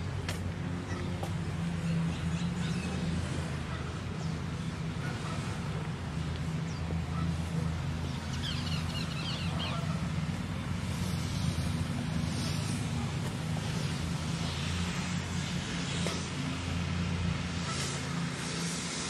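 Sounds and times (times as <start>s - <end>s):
small birds chirping: 6.4s - 11.7s.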